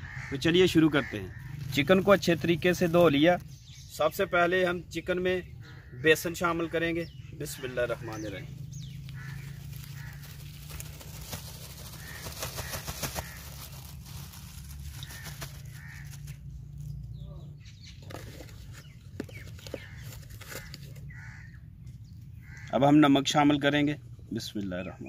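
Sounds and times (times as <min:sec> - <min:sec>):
birds calling: 0:00.0 - 0:25.0
crackling rustle: 0:08.4 - 0:17.1, 0:18.0 - 0:21.4.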